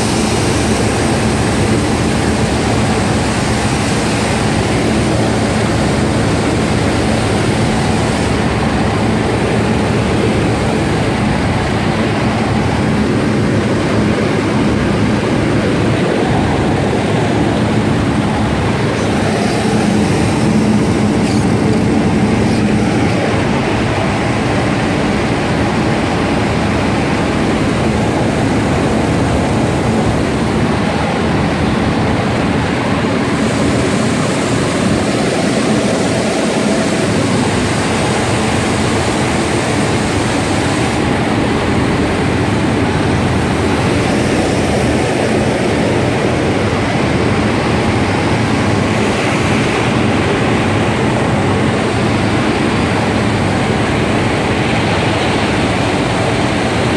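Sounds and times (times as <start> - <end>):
belt press machinery running: 14.7 - 30.8.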